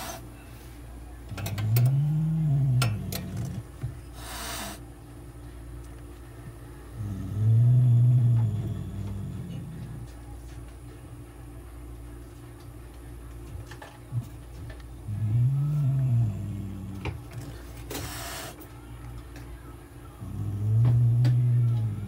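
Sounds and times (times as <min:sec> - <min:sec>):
cat growling: 0:01.3 - 0:04.8, 0:07.0 - 0:10.1, 0:15.1 - 0:17.3, 0:20.2 - 0:22.0
cat hissing: 0:04.2 - 0:04.8, 0:17.9 - 0:18.6.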